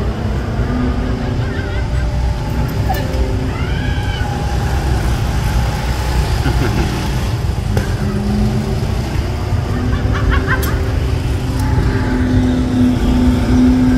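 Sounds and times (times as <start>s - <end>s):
high rising-and-falling cry: 0.0s - 13.9s
low mechanical rumble: 0.0s - 13.9s.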